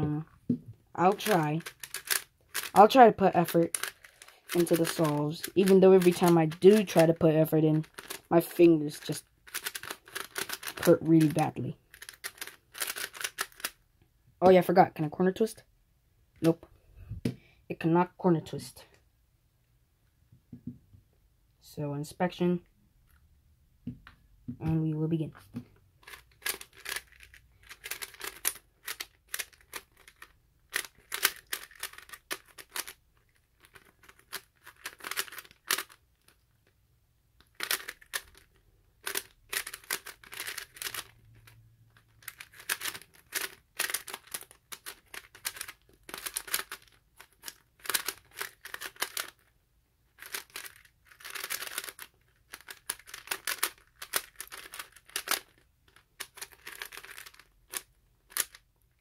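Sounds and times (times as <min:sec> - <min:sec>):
plastic puzzle cube clacking: 0:01.0 - 0:13.8, 0:26.0 - 0:36.6, 0:37.4 - 0:49.5, 0:50.1 - 0:58.7.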